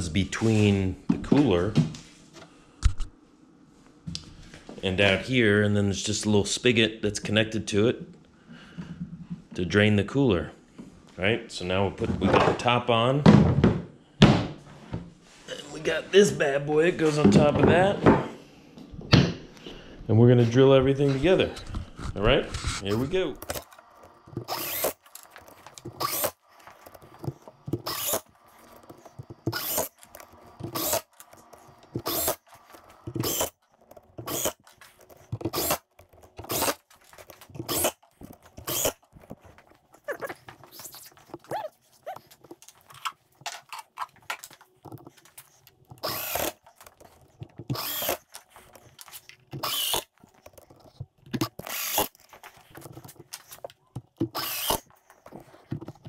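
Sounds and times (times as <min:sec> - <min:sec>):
cordless drill driving screws: 0:23.4 - 0:33.6, 0:34.2 - 0:34.7, 0:35.4 - 0:36.8, 0:38.6 - 0:39.0, 0:45.9 - 0:46.7, 0:47.7 - 0:48.4, 0:49.6 - 0:50.2, 0:51.4 - 0:52.2, 0:54.2 - 0:54.9.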